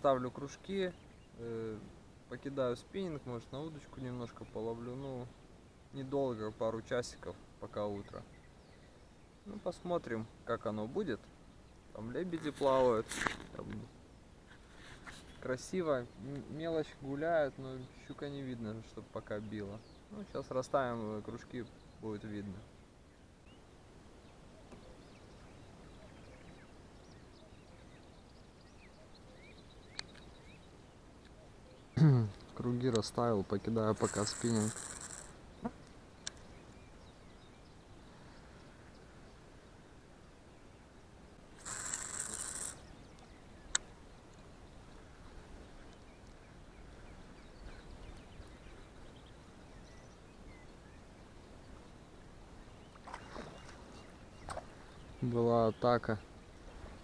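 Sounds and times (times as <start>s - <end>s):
faint bird chirps: 0.0s - 13.2s, 13.8s - 57.0s
sharp reel click: 34.0s - 35.3s, 41.6s - 42.8s
fishing line hissing off reel: 34.0s - 35.4s, 41.6s - 43.0s.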